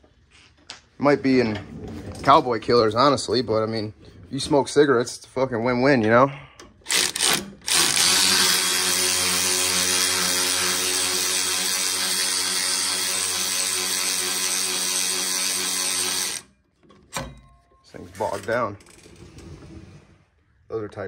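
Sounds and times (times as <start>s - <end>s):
electric ratchet driving bolt: 6.9s - 16.5s.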